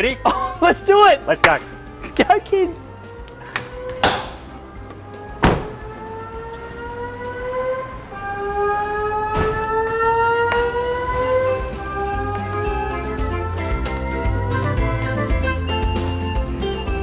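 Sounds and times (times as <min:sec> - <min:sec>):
sharp knocks: 0:03.9 - 0:04.5.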